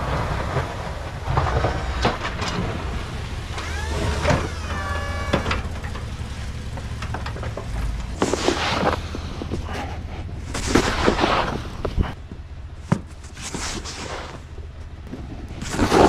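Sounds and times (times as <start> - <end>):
truck engine idling: 0.0 - 16.0
shovel scraping snow: 8.2 - 9.4, 10.5 - 12.2, 13.3 - 14.4, 15.6 - 16.0.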